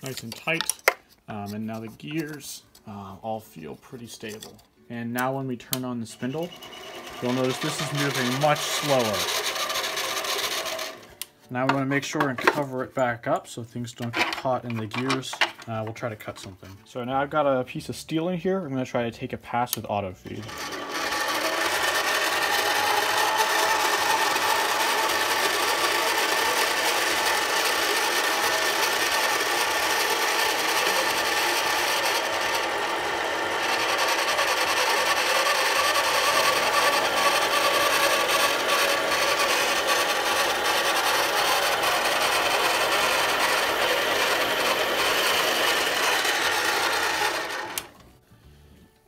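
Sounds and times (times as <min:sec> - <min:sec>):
metal lathe whirring: 0:06.4 - 0:11.1, 0:20.4 - 0:48.0.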